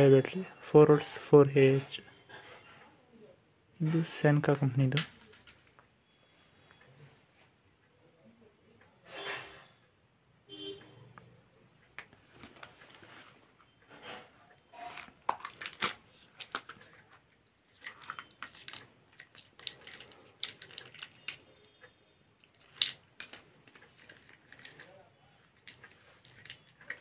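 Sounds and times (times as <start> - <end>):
small hard objects clicking: 17.7 - 21.8.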